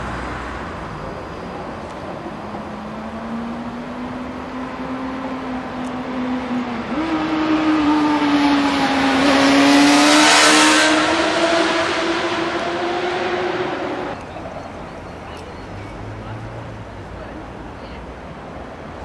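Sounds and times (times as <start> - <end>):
car passing: 0.0 - 14.2.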